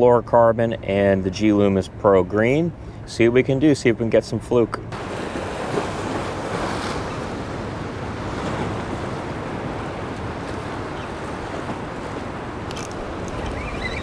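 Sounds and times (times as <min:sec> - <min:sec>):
wind on microphone: 0:04.9 - 0:14.0
surf breaking on rocks: 0:05.0 - 0:14.0.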